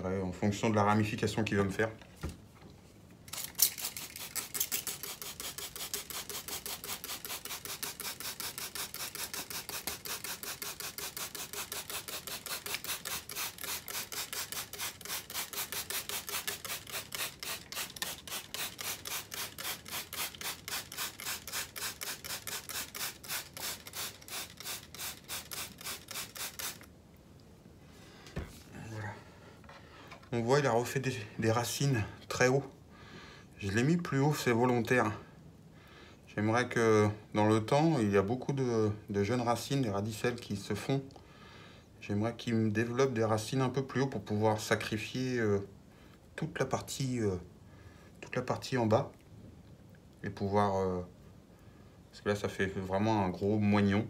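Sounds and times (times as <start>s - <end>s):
hand tool scratching soil: 3.7s - 26.8s.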